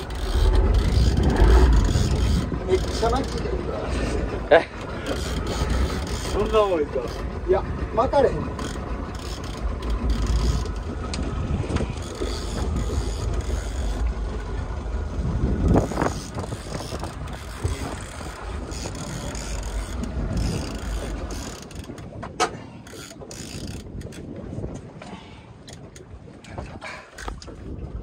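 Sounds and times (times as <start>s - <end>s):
fishing reel gears ticking: 0.0s - 3.6s, 5.0s - 7.6s, 8.5s - 10.9s, 12.0s - 14.2s, 15.7s - 22.1s, 22.8s - 24.2s
wind and boat rumble: 0.0s - 28.0s.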